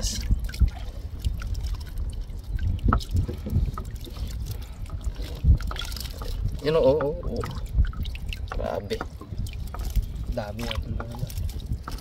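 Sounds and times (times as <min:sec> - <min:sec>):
steady low rumble: 0:00.0 - 0:12.0
water dripping and trickling: 0:00.0 - 0:12.0.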